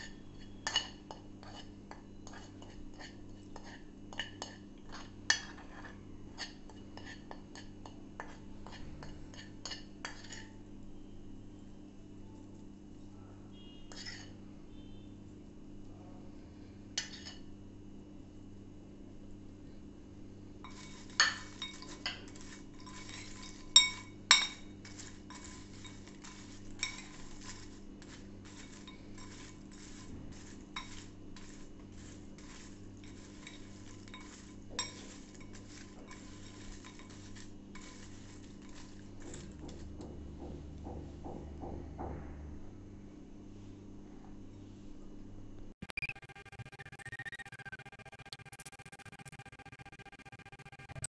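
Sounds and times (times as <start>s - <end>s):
spoon clinking on glass bowl: 0.0s - 2.5s, 20.6s - 39.4s
fried pasta scraping and rattling: 0.0s - 10.5s, 20.6s - 39.9s.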